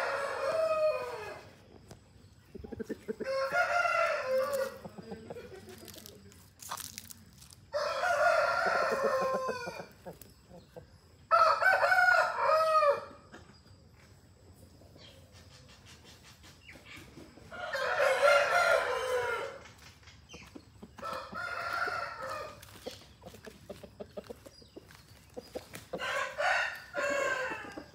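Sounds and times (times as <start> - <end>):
roosters crowing: 0.0 - 1.7, 3.0 - 6.1, 7.6 - 13.3, 17.4 - 19.8, 20.8 - 23.0, 25.9 - 27.9.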